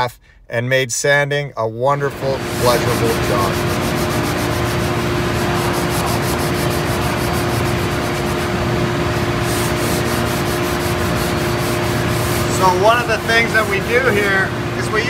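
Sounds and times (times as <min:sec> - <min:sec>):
sandpaper rubbing on wood: 0:02.4 - 0:14.4.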